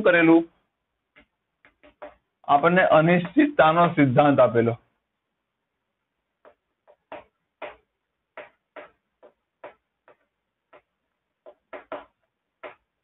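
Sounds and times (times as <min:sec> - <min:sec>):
chalk tapping and scratching: 0:01.1 - 0:02.3, 0:06.4 - 0:12.9.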